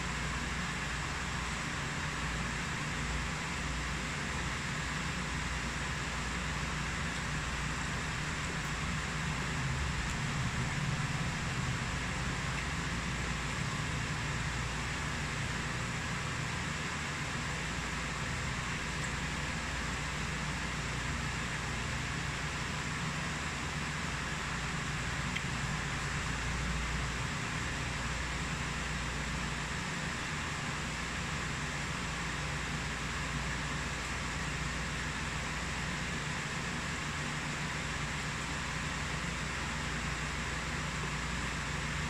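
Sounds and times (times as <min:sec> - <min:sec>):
low hum: 0:08.4 - 0:14.7.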